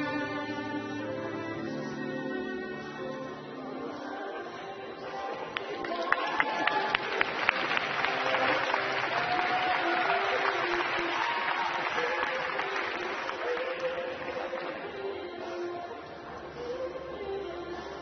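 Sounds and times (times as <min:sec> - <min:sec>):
faint music over sound system: 0:00.0 - 0:18.0
crowd applauding: 0:05.4 - 0:14.9.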